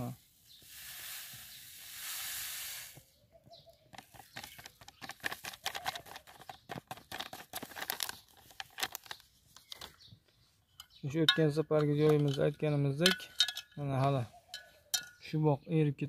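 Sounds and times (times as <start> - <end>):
crinkly sachet crackling: 4.2 - 9.9.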